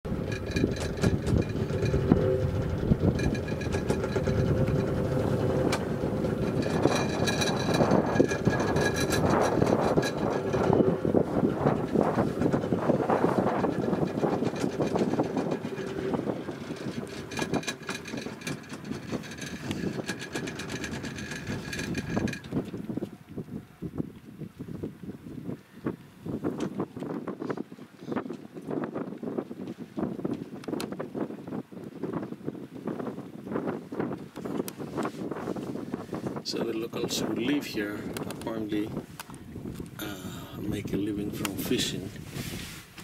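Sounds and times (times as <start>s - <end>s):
boat motor running: 0.0s - 24.0s, 34.0s - 42.0s
wind buffeting microphone: 0.0s - 43.0s
sharp clicks and knocks: 0.1s - 22.8s, 38.1s - 38.5s.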